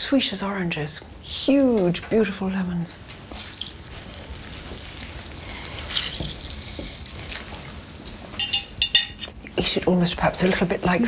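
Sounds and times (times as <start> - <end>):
juice dripping onto plate: 3.1 - 9.6.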